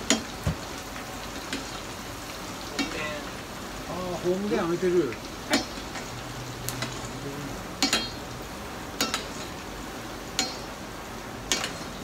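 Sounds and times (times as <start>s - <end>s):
onions sizzling in oil: 0.0s - 12.0s
metal utensil clinking on pan: 2.7s - 3.1s, 5.5s - 6.1s, 7.8s - 8.3s, 9.0s - 9.6s, 10.3s - 10.7s, 11.5s - 12.0s.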